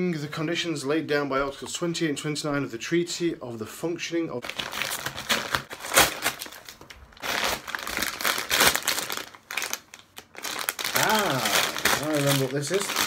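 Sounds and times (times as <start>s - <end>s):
envelope and tissue paper crinkling: 4.4s - 13.0s.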